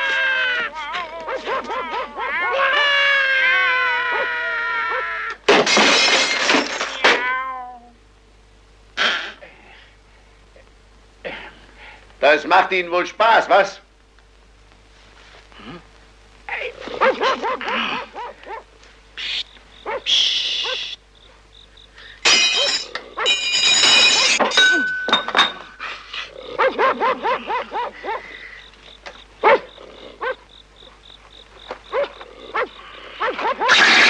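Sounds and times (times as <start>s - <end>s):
dogs barking and yelping: 0.0s - 5.4s, 16.9s - 18.7s, 19.4s - 21.4s, 22.3s - 24.6s, 25.6s - 34.0s
objects crashing and clattering: 5.5s - 7.3s, 22.2s - 25.8s, 33.7s - 34.0s.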